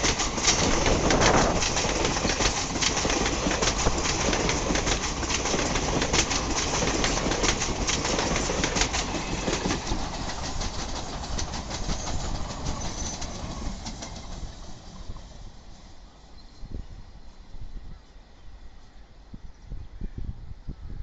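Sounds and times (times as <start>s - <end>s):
train wheels clattering over rail joints: 0.0s - 14.7s.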